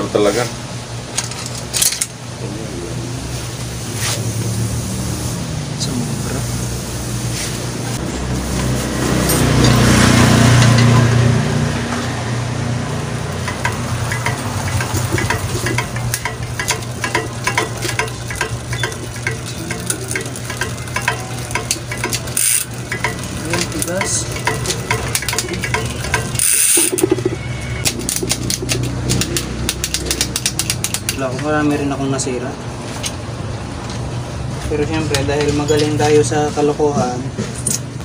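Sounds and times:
repair stand clamp ratchet clicks: 13.5 - 27.2, 27.9 - 31.2.

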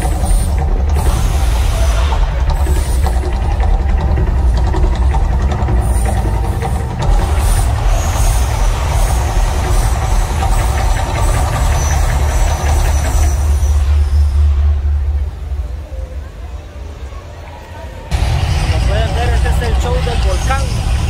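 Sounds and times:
gas flames rushing: 0.0 - 15.5
dense crackling: 0.0 - 16.2
deep rumble: 0.0 - 17.2, 18.1 - 21.0.

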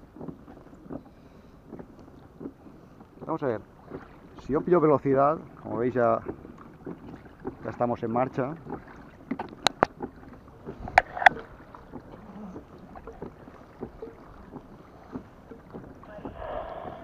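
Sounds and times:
water washing along hull: 0.0 - 17.0
sharp clicks and knocks: 9.3 - 10.1.

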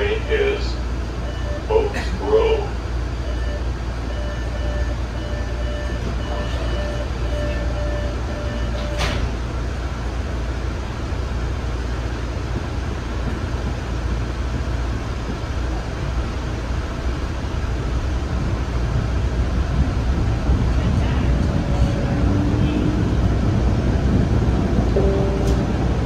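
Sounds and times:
subway car rumble and hum: 0.0 - 26.0.

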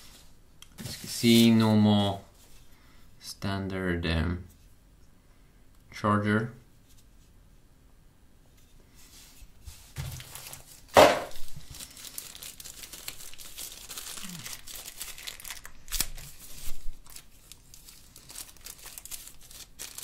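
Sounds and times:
plastic bag crinkling and tearing: 10.1 - 20.0.

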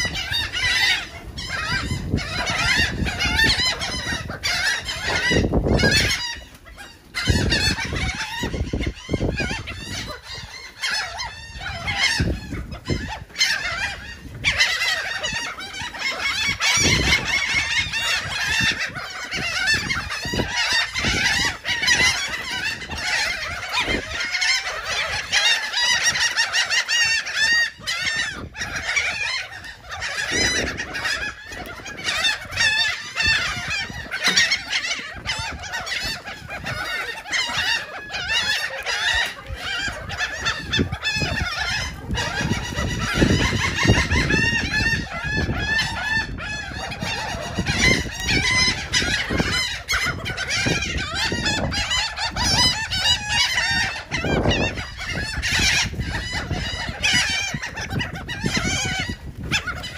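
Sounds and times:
gulls squawking and laughing: 0.0 - 59.9.

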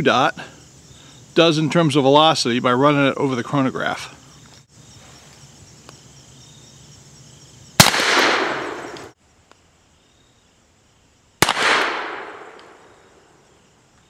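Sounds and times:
gunshot echo: 7.8 - 9.1, 11.4 - 13.0
revolver shots: 7.8 - 9.1.

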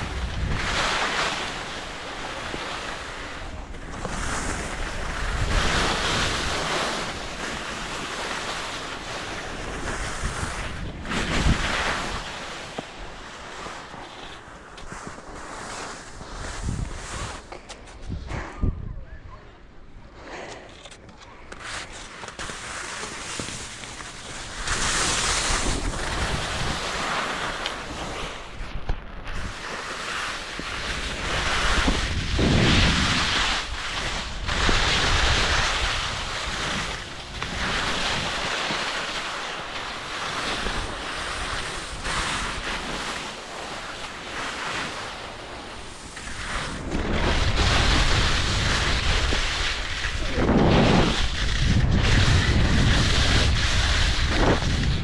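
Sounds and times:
skis scraping over snow: 0.0 - 18.4, 20.3 - 55.0
wind on microphone: 9.0 - 12.4, 16.1 - 19.4, 24.4 - 27.1, 30.7 - 38.5, 45.8 - 55.0.

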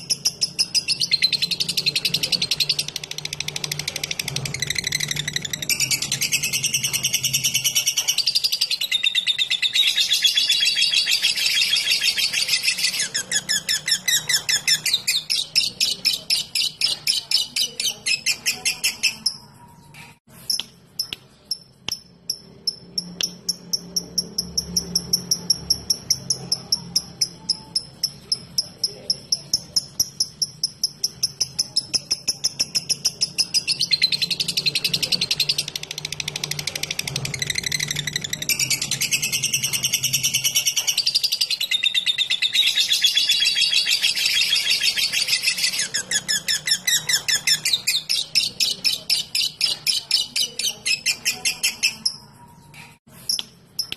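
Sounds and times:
lovebird chatter: 0.0 - 53.9.

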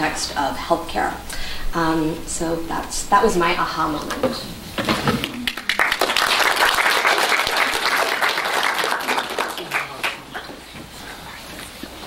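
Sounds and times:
audience applauding: 5.2 - 10.6.

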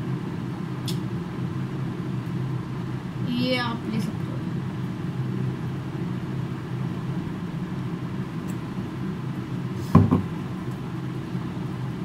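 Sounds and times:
low background hum: 0.0 - 12.0
bottle set down on desk: 9.9 - 10.3.

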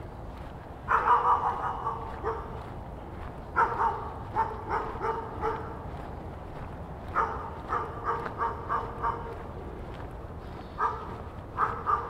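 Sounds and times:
dog barking: 0.9 - 2.6, 3.6 - 5.8, 7.1 - 9.4, 10.8 - 12.0.

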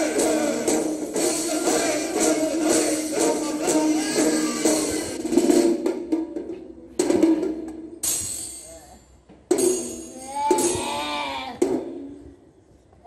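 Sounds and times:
tambourine jingling: 8.0 - 10.8.

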